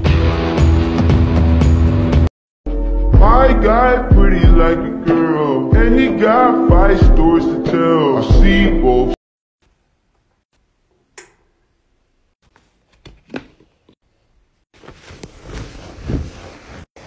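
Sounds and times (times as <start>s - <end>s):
wet wipe scrubbing a surface: 14.7s - 17.0s.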